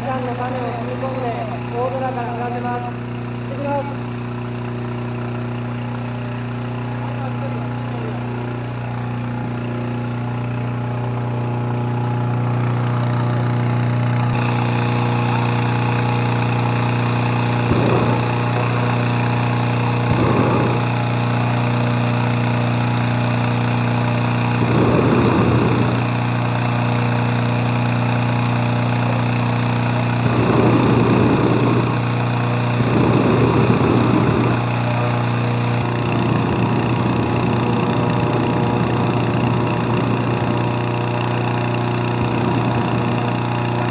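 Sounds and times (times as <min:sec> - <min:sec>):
propane burner rushing: 0:00.0 - 0:43.9
small petrol engine running: 0:00.0 - 0:43.9.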